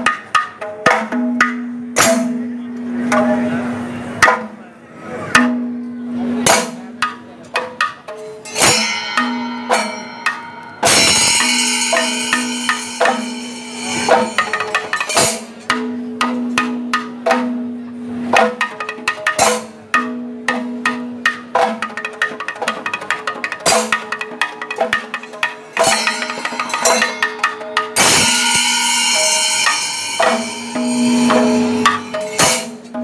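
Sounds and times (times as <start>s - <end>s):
metallic ringing wash: 8.4s - 15.6s, 25.0s - 32.9s
hand drum fast strokes: 8.6s - 17.4s, 18.4s - 33.0s.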